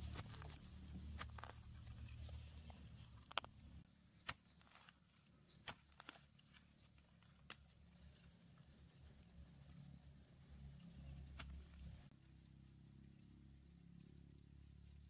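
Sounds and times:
hand tool digging into soil: 0.0s - 7.8s.

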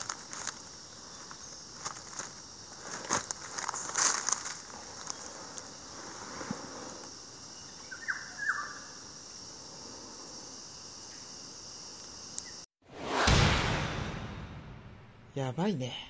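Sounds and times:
insects droning: 0.0s - 12.7s.

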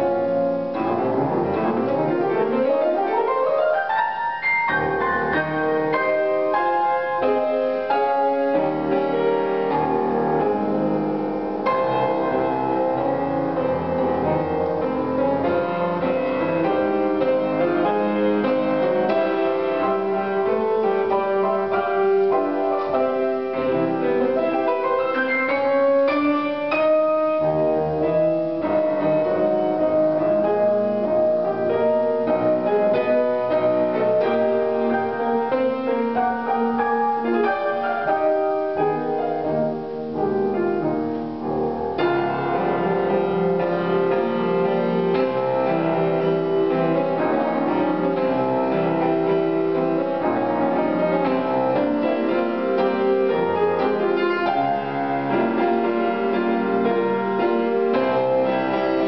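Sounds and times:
grand piano playing: 0.0s - 59.0s.

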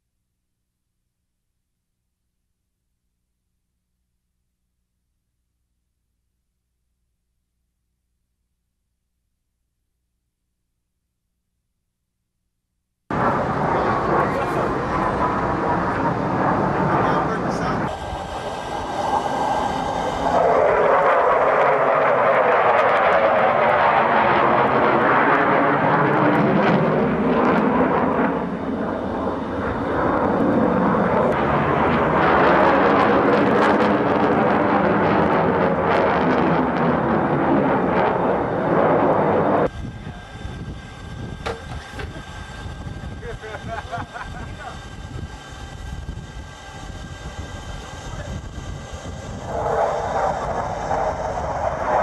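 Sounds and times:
fighter jet flying by: 13.1s - 52.0s.

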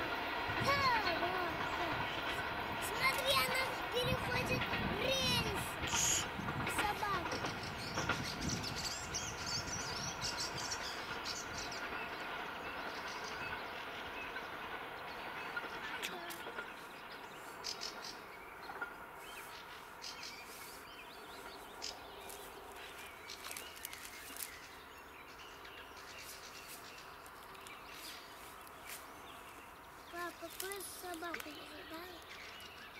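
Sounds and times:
distant train rolling: 0.0s - 32.9s
birds chirping: 0.6s - 32.9s.

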